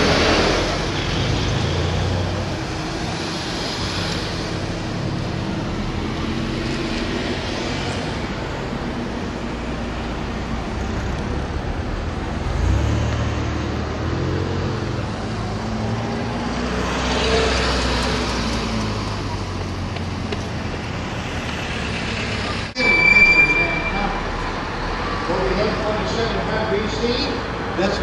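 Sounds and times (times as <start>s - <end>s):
car engine hum and road noise: 0.0s - 22.8s
passing traffic: 0.0s - 28.0s
brief high tone: 22.8s - 24.3s.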